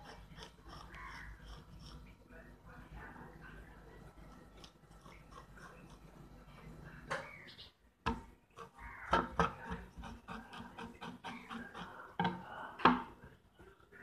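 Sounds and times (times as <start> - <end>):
knife scraping fish skin: 0.0 - 2.0, 8.6 - 12.0.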